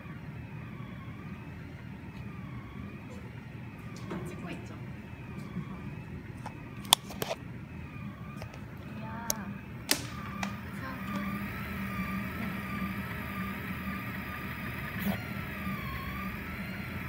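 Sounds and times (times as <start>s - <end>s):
low fan hum: 0.0s - 17.0s
stepper motors whining: 0.0s - 17.0s
sharp clicks: 9.2s - 11.3s.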